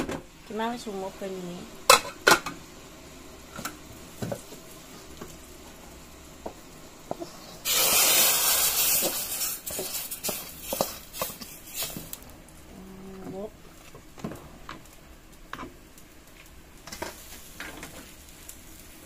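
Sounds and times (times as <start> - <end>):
hot oil sizzling in water: 0.3 - 19.0.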